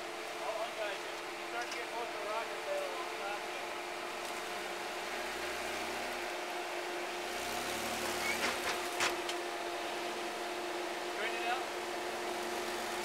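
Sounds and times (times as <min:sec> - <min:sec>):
engine running at low revs: 0:00.0 - 0:13.0.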